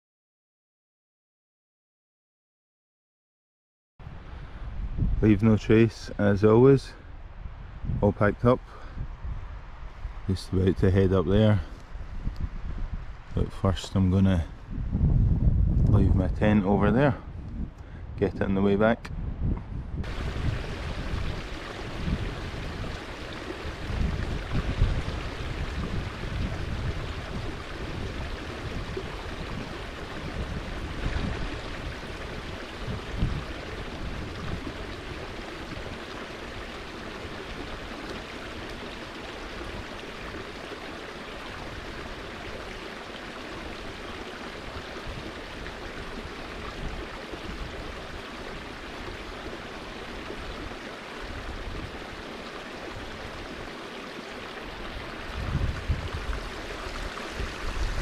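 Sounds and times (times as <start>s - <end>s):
wind buffeting microphone: 4.0s - 40.6s, 43.5s - 52.2s, 54.7s - 58.0s
stream water rushing: 20.0s - 58.0s.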